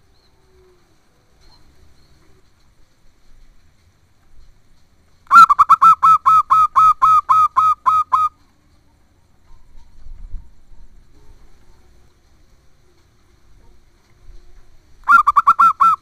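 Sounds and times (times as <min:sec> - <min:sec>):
dove calling: 0:05.3 - 0:08.4, 0:15.0 - 0:16.0.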